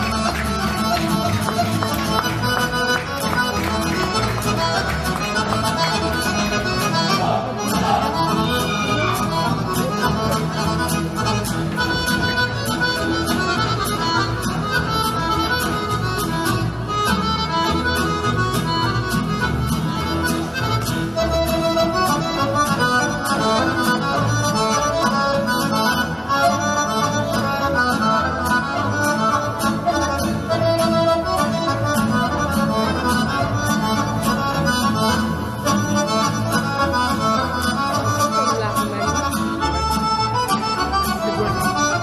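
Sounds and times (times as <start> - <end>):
fast instrumental folk dance music: 0.0 - 42.0.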